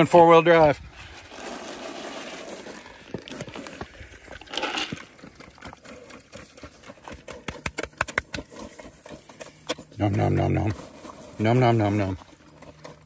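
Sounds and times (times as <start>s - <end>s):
pig chomping feed: 1.4s - 13.0s.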